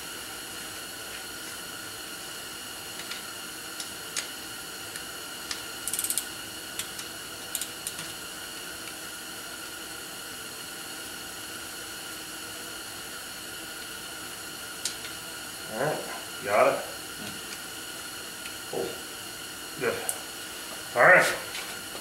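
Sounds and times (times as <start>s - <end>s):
ratchet clicks: 5.5s - 8.1s
wrench metal clicks: 5.5s - 8.1s.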